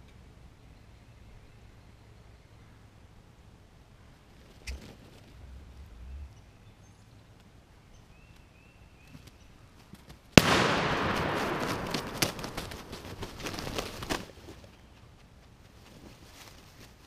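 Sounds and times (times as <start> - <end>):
loud gunshot: 10.4 - 13.6
turkey wings beating in dry leaves: 10.4 - 14.8.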